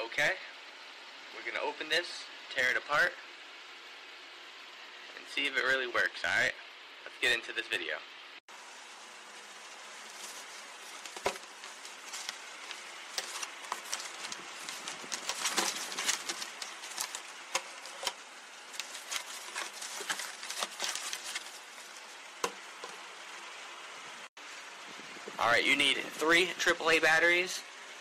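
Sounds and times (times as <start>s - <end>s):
packaging rustling and crinkling: 9.2s - 23.1s.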